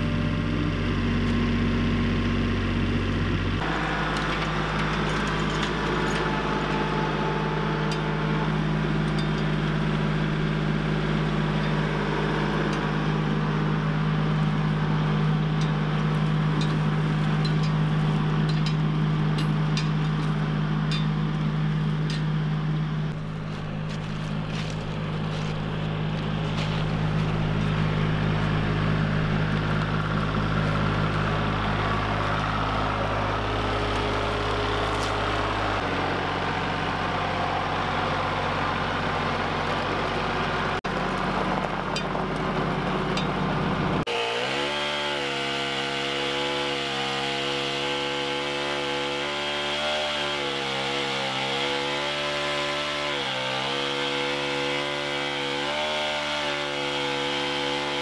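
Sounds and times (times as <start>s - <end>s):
tractor diesel engine running: 0.0s - 44.6s
chainsaw cutting log: 3.6s - 20.5s, 23.1s - 37.2s, 44.0s - 58.0s.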